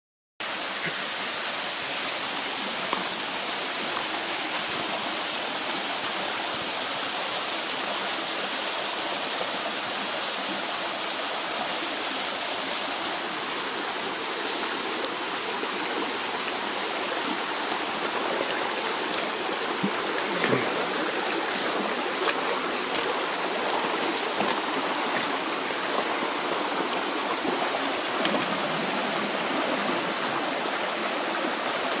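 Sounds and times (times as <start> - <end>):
stream rushing over stones: 0.4 - 32.0
footsteps wading in water: 19.1 - 26.0.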